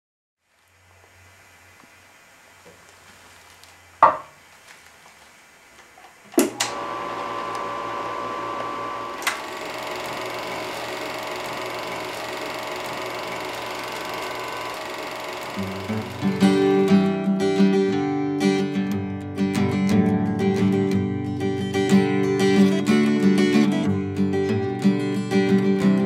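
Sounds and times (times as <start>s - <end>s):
film projector motor whirring: 6.1s - 17.2s
projector switch clicks: 6.3s - 6.8s, 8.6s - 16.4s.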